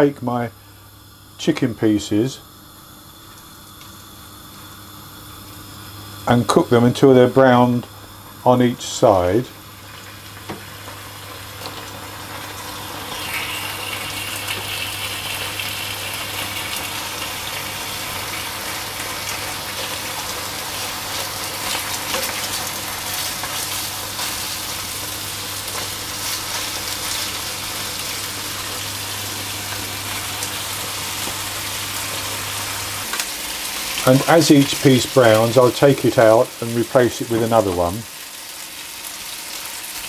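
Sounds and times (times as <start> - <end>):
chicken sizzling in hot oil: 7.3 - 40.0
oil crackles: 9.8 - 36.9.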